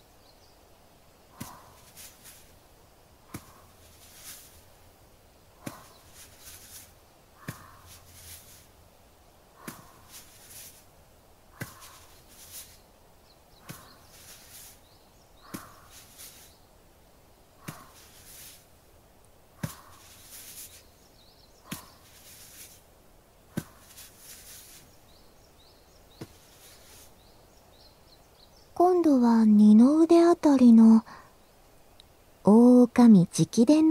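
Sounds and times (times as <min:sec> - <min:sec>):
soft rustle: 0:00.1 - 0:28.7
hands rubbing skin: 0:01.4 - 0:02.5, 0:03.3 - 0:04.6, 0:05.6 - 0:08.7, 0:09.6 - 0:10.9, 0:11.6 - 0:12.8, 0:13.6 - 0:14.8, 0:15.5 - 0:16.5, 0:17.6 - 0:18.7, 0:19.6 - 0:20.9, 0:21.6 - 0:22.8, 0:23.5 - 0:25.0, 0:26.2 - 0:27.1.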